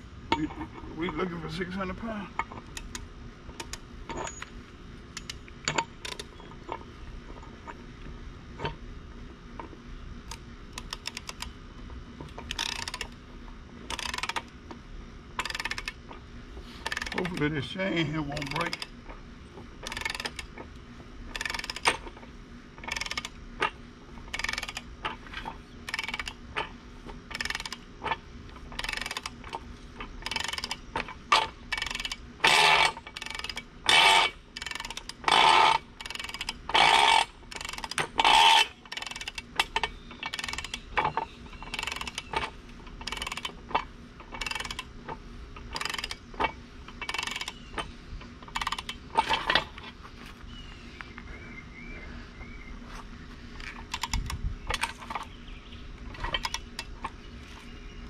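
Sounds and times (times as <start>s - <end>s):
ratchet wrench clicking: 2.6s - 4.5s, 5.2s - 6.3s, 10.3s - 11.5s, 12.3s - 13.2s, 13.9s - 14.5s, 15.4s - 16.0s, 16.8s - 17.5s, 18.3s - 19.0s, 19.8s - 20.6s, 21.3s - 22.1s, 22.8s - 26.7s, 27.3s - 29.6s, 30.2s - 44.9s, 45.6s - 49.7s, 53.6s - 55.3s, 56.2s - 57.1s.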